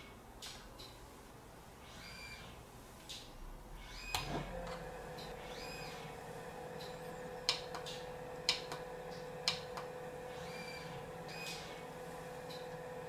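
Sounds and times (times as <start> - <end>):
electric motor humming: 3.8 - 13.0.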